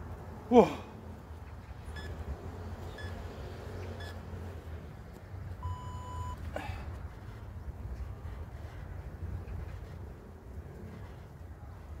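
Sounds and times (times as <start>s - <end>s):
workout timer beeps: 5.6s - 6.4s.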